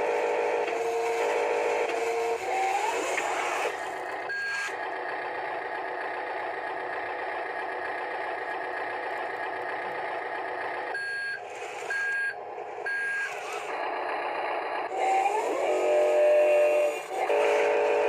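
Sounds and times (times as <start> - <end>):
electronic engine sound: 0.0 - 18.0
high reversing beep: 4.3 - 4.7, 11.0 - 13.4.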